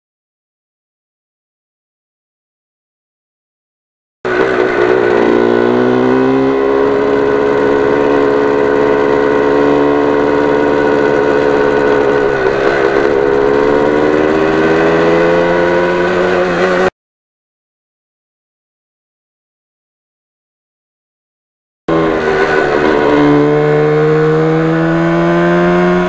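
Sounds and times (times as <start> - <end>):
motorcycle engine running: 4.3 - 16.9, 21.9 - 26.0.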